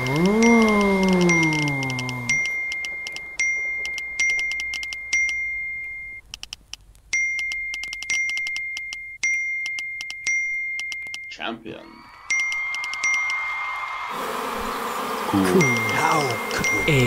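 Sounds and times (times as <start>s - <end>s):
notification pings: 0.2s - 6.2s
quick tapping clicks: 6.2s - 9.0s, 12.3s - 13.4s.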